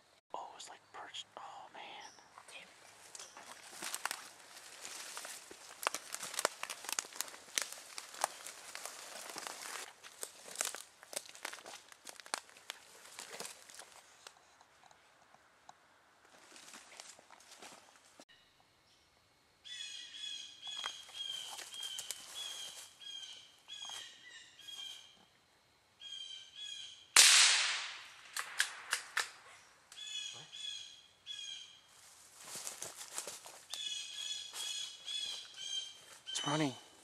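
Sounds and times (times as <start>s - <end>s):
gunshot echoing: 27.2s - 29.3s
quick clicks: 28.3s - 29.4s
bird harsh calls: 30.0s - 31.9s, 33.8s - 37.0s.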